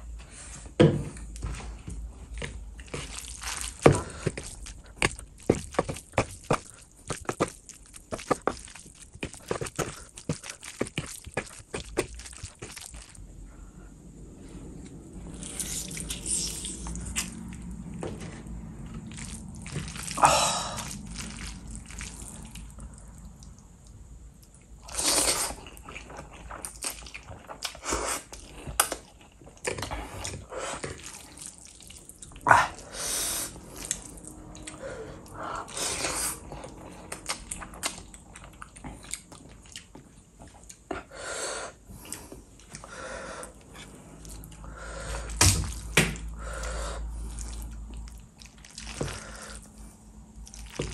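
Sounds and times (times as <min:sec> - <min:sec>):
chewing mouth sounds: 0:02.7 - 0:13.2, 0:46.6 - 0:50.9.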